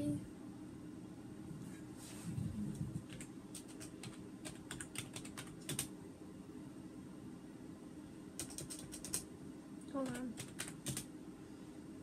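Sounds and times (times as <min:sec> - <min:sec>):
fingers typing: 0:03.0 - 0:05.9, 0:08.4 - 0:09.3, 0:10.0 - 0:11.1.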